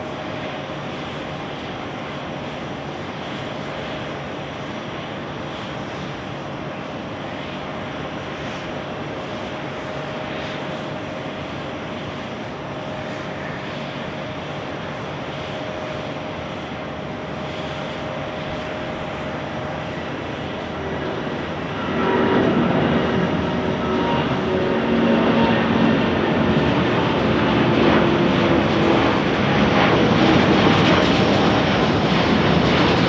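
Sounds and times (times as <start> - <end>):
jet engines rushing: 0.0 - 33.0
steady engine tones: 16.7 - 33.0.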